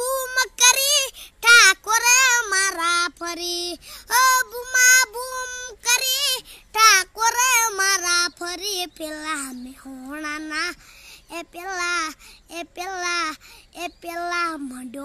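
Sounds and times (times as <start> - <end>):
boy singing unaccompanied: 0.0 - 15.0
boy breathing: 1.1 - 1.4, 3.8 - 4.1, 6.4 - 6.8, 10.8 - 11.3, 12.1 - 12.5, 13.4 - 13.8.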